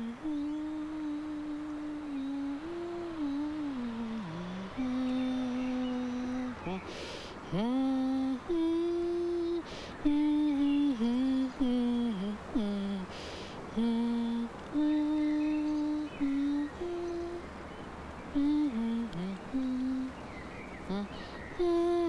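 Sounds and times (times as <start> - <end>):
woman humming: 0.0 - 17.5, 18.3 - 20.2, 20.8 - 22.0
short breaths: 6.8 - 7.5, 9.6 - 10.0, 13.0 - 13.8, 20.4 - 21.5.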